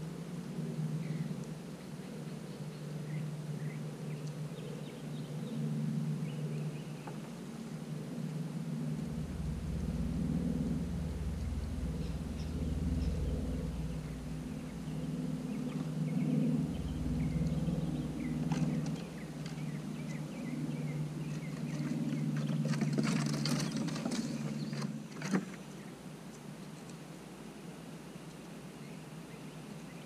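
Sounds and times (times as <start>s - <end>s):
wavering motor drone: 0.0s - 26.1s
deep rumble: 7.8s - 25.0s.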